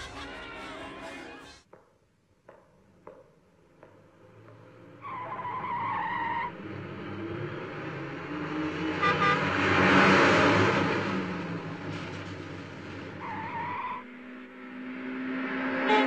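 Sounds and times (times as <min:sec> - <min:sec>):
car tyres squealing: 0:04.2 - 0:06.9, 0:13.1 - 0:14.4
car horn toots: 0:09.0 - 0:09.5, 0:15.8 - 0:16.0.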